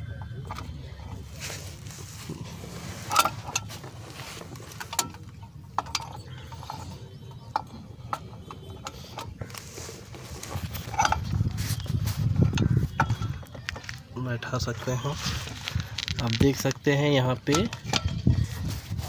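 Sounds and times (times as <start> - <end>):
metal parts clinking: 0.2 - 14.1.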